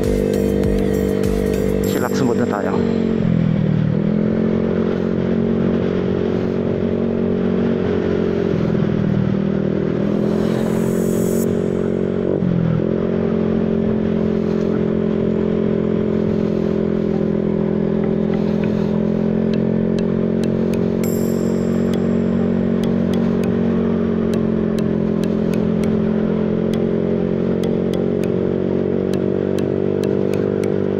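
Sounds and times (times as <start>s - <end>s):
scooter engine running: 0.0s - 5.6s, 13.1s - 30.9s
road and wind noise: 0.0s - 30.9s.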